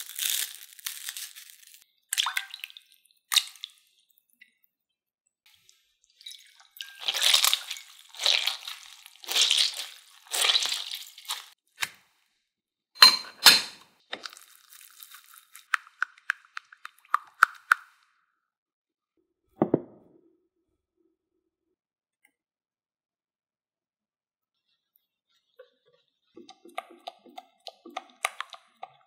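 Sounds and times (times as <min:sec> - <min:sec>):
glass bowl clinking: 0:06.2 - 0:08.0, 0:13.0 - 0:13.8
hands swishing in water: 0:06.3 - 0:11.6.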